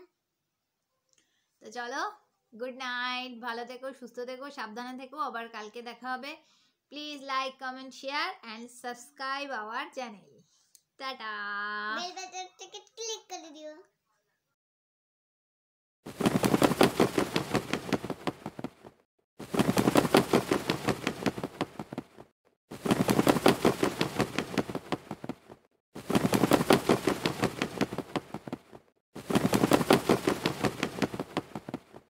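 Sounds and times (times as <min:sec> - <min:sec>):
rapid clicks or pops: 0:16.1 - 0:32.0.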